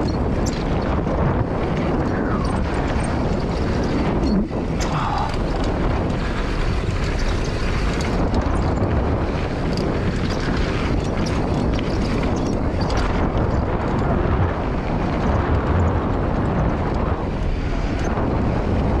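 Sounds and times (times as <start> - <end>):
bike clicks and rattles: 0.0 - 19.0
bike tyres rolling on dirt: 0.0 - 19.0
wind rumbling on microphone: 0.0 - 19.0.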